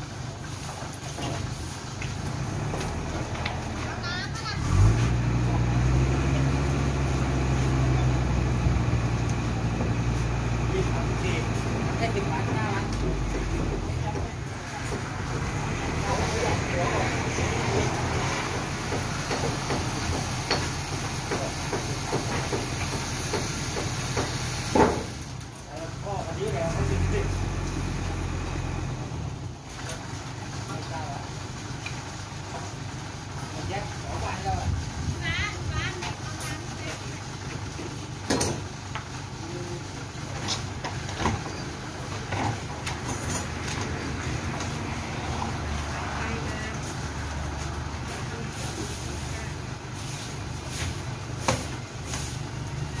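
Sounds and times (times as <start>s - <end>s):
truck engine running: 0.0s - 53.0s.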